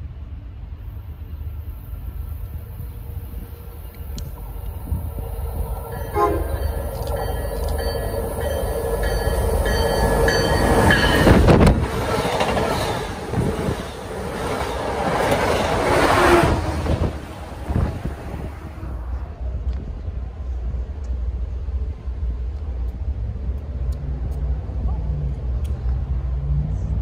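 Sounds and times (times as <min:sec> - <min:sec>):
train passing at speed: 0:00.0 - 0:27.0
high ringing tones: 0:05.2 - 0:11.4.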